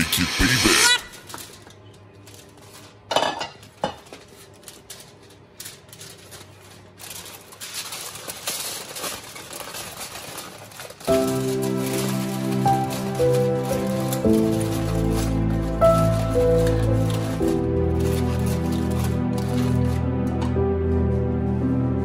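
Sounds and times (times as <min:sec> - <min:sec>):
foil crinkling: 0:01.0 - 0:22.0
chestnuts tumbling on foil: 0:01.1 - 0:20.6.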